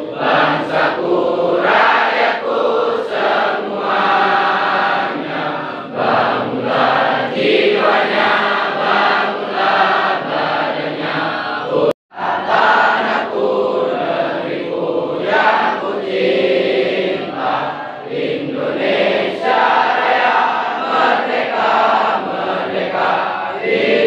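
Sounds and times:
crowd of students singing: 0.0s - 24.0s.

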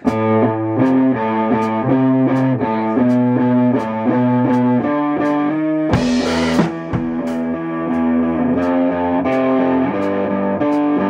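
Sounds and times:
drums: 0.0s - 11.0s
electric guitar chord riff: 0.0s - 11.0s
cymbal crash: 6.0s - 7.5s.

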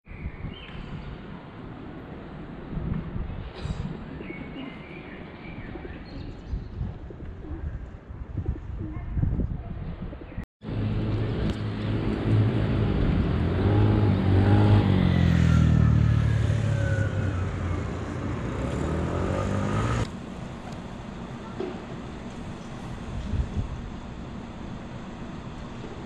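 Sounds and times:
vehicle engine running: 10.6s - 26.0s.

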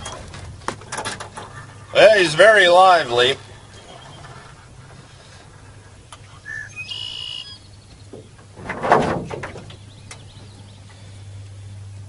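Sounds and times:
bird whistled call: 6.4s - 7.7s.

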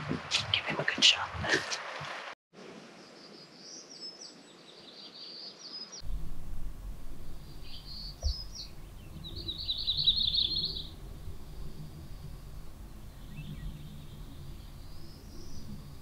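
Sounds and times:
songbirds singing: 3.0s - 16.0s
rapid bird trill: 6.0s - 16.0s
steady low rumble: 6.0s - 16.0s.

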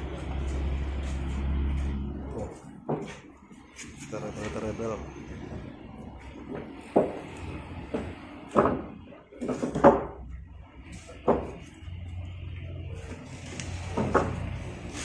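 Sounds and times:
wooden beams knocking together: 6.5s - 7.3s, 7.9s - 10.3s, 11.2s - 11.7s, 13.8s - 14.6s.

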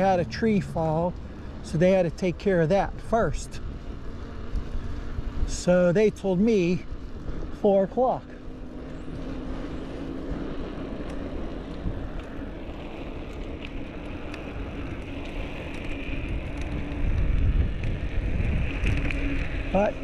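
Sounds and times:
wind buffeting a microphone: 11.4s - 20.0s.

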